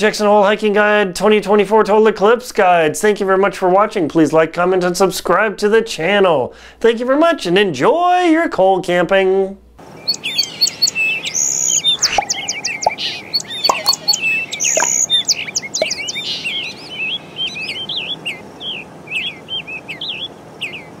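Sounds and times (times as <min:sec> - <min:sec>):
small birds chirping: 0:09.8 - 0:21.0
warbling whistles: 0:10.1 - 0:16.3.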